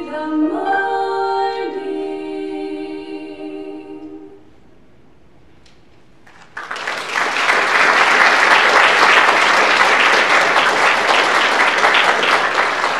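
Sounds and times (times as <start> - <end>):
audience applauding: 6.2 - 12.9
lone claps: 6.3 - 12.9.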